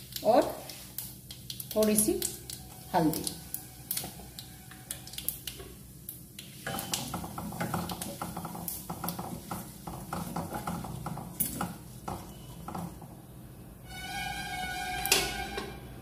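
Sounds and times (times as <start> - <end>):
spices sizzling in oil: 0.0 - 12.7
metal spoon scraping a pan: 13.9 - 15.9.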